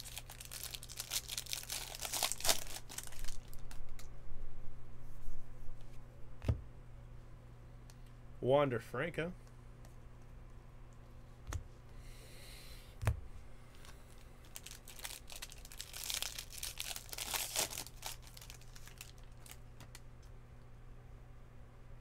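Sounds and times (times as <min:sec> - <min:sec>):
wrapper tearing and crinkling: 0:00.0 - 0:04.0, 0:14.4 - 0:20.0.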